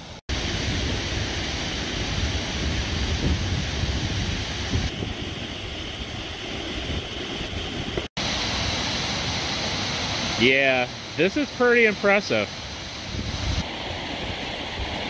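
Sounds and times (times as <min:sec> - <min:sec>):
waterfall rushing: 0:08.2 - 0:15.0.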